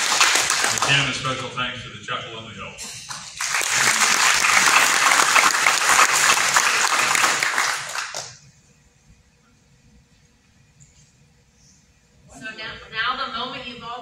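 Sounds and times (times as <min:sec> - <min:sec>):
applause: 0:00.0 - 0:01.1, 0:03.0 - 0:08.4.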